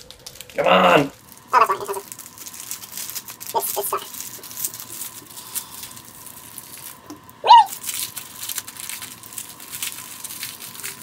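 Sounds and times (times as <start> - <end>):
plastic bag crinkling: 0.0 - 11.0
strained vocal noise: 0.5 - 2.1.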